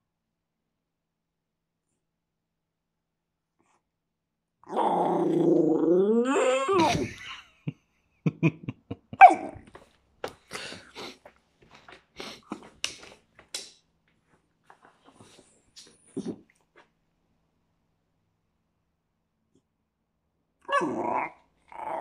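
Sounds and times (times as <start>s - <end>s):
dog whining: 4.6s - 7.0s, 20.6s - 22.0s.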